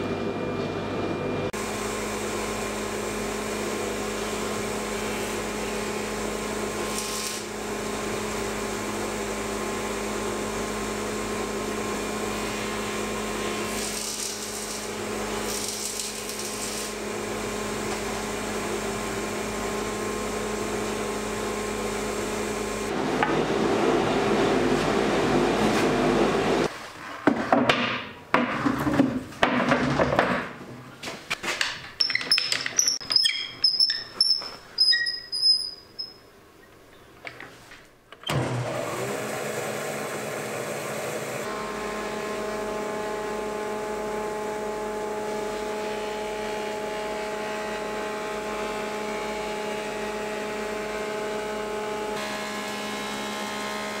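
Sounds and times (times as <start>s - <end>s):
planer-thicknesser humming: 0.0s - 26.7s, 38.3s - 54.0s
planer cutting wood: 38.3s - 54.0s.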